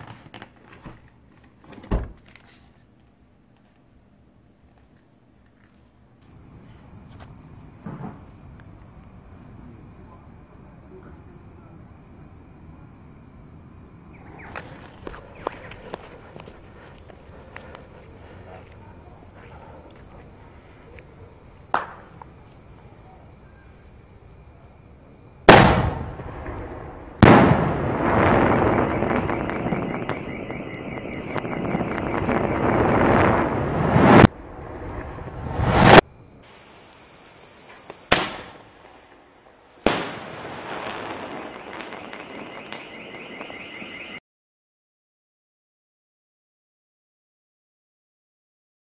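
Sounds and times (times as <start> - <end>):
crickets chirring: 6.2 - 44.2
firework fuse crackling: 25.4 - 44.1.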